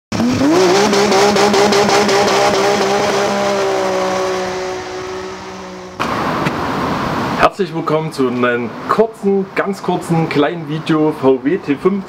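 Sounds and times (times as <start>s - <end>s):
engine at high revs: 0.1s - 7.4s.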